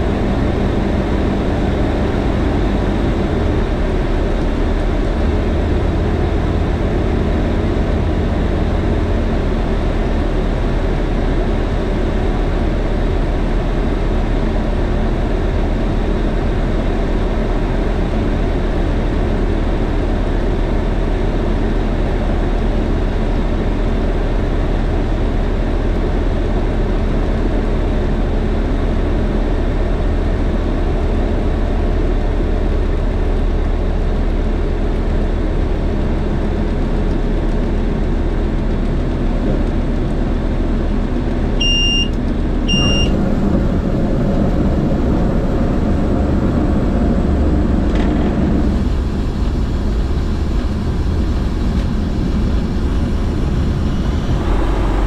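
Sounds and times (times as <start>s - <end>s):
aircraft engine and propeller drone: 0.0s - 55.0s
short high electronic beeps: 41.6s - 42.1s, 42.7s - 43.1s.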